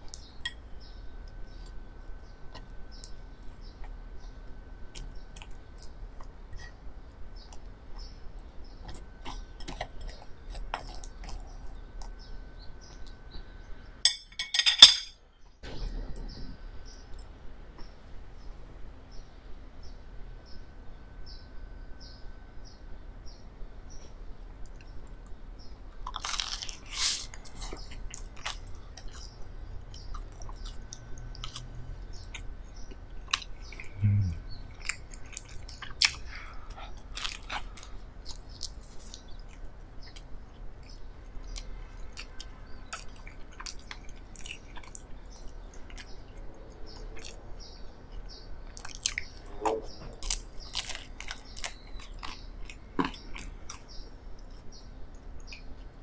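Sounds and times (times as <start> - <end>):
person biting and chewing bread: 26.0 - 29.3, 34.8 - 39.6, 50.1 - 54.6.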